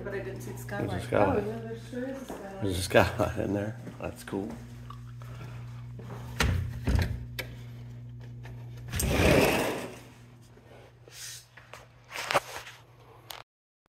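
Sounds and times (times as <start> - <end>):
electric motor hum: 0.0 - 10.7.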